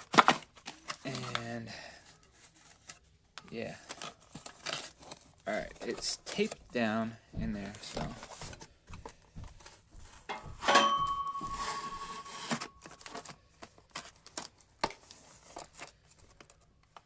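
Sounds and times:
packing tape tearing: 0:00.0 - 0:01.4.

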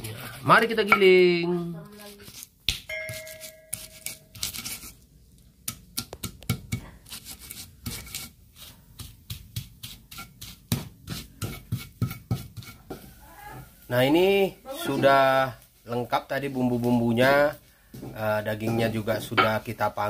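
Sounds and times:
stone grinding spices on slab: 0:01.9 - 0:13.2.

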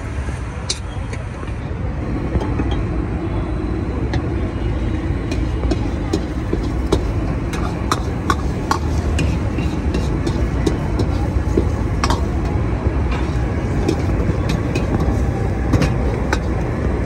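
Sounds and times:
gas burner roaring: 0:01.9 - 0:17.0
metal ladle scraping wok: 0:05.2 - 0:16.8.

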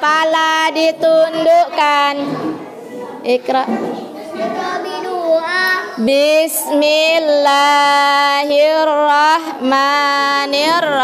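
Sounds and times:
child chanting a prayer: 0:04.2 - 0:06.0.

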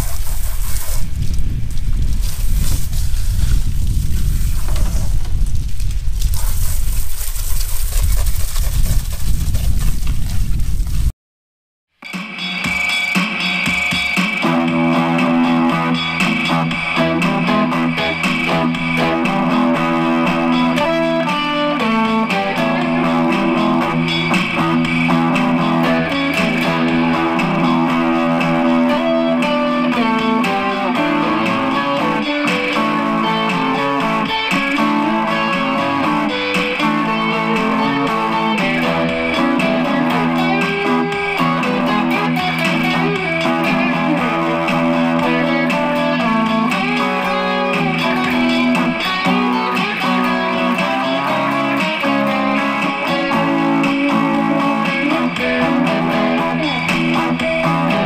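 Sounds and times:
clean electric guitar melody: 0:14.4 - 0:58.0.

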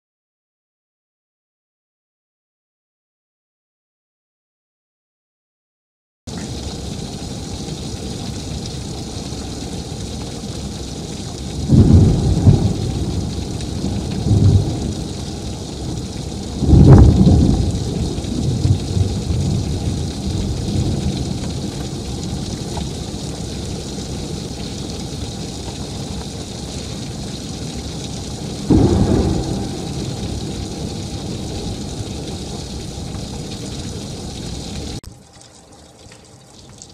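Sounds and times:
heavy rain pouring: 0:06.3 - 0:36.9
thunderclaps rumbling: 0:11.4 - 0:35.0.

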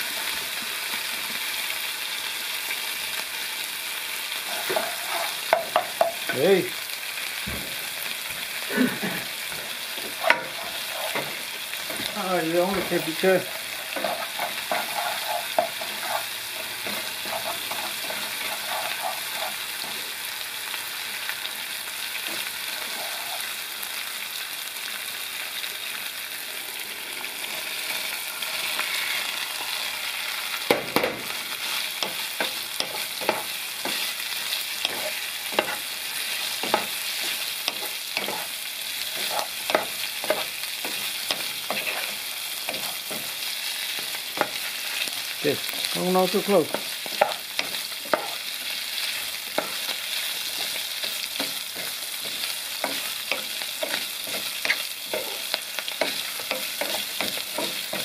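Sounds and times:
chili paste sizzling in oil: 0:00.0 - 0:58.0
spatula scraping and knocking pot: 0:04.5 - 0:06.4, 0:10.0 - 0:20.0, 0:34.9 - 0:35.8, 0:37.7 - 0:43.4, 0:46.7 - 0:48.4.

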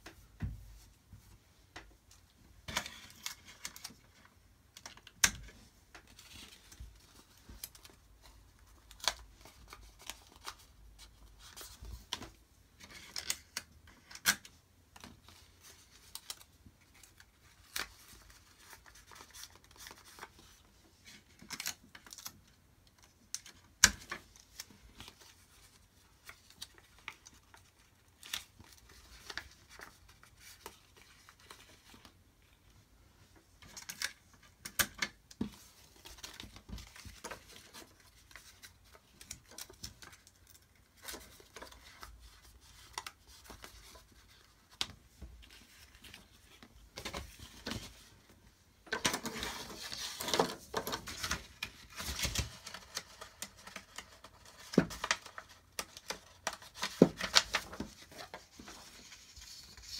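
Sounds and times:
paper rustling and crinkling: 0:02.3 - 0:32.8, 0:33.5 - 0:59.9.

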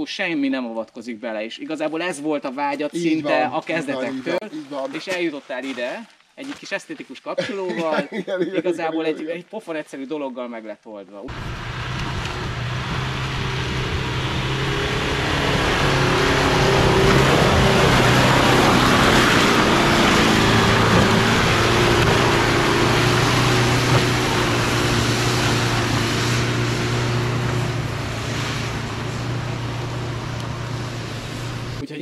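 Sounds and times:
diesel engine pulling hard: 0:11.3 - 0:31.8
tyres churning in mud: 0:11.4 - 0:31.8.

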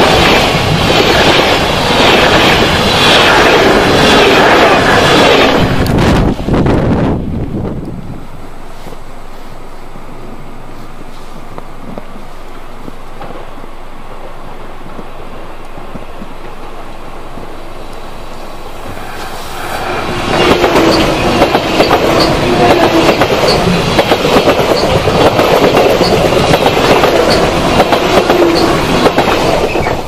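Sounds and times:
train wheels clattering on rails: 0:18.8 - 0:30.0.

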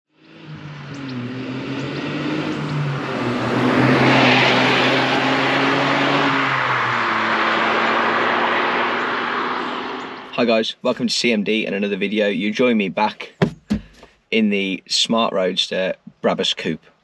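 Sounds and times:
wind and road noise: 0:00.1 - 0:10.4, 0:13.2 - 0:14.3
car engine droning: 0:00.1 - 0:14.8.

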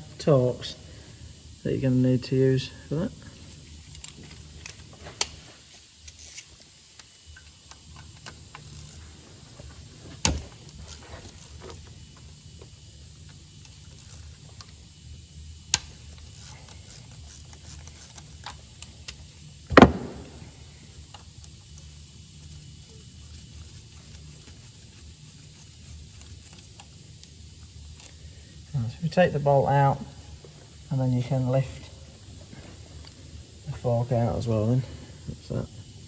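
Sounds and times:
ratchet clicking: 0:06.0 - 0:09.4, 0:10.2 - 0:20.3, 0:21.0 - 0:28.3.

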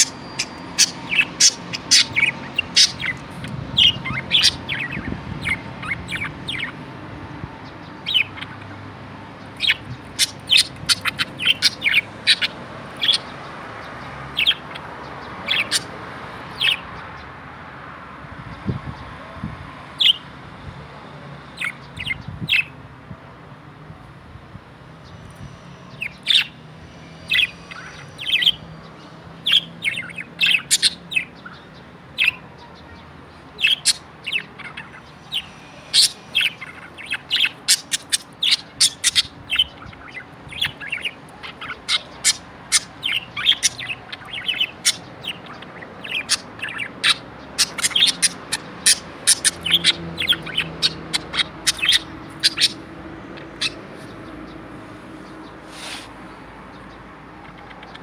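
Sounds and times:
budgerigar chirping: 0:00.0 - 0:06.8, 0:08.0 - 0:08.7, 0:09.5 - 0:13.3, 0:14.4 - 0:15.9, 0:27.3 - 0:28.6, 0:29.4 - 0:32.4, 0:33.6 - 0:54.3, 0:57.4 - 0:58.0.

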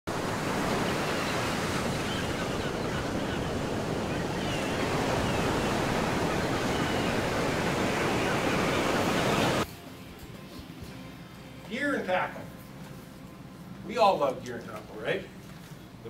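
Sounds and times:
ocean surf rushing: 0:00.1 - 0:09.6.

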